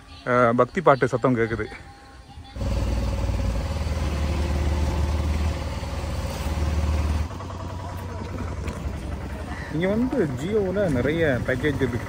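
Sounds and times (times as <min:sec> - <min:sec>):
auto-rickshaw engine running: 0:02.6 - 0:12.0.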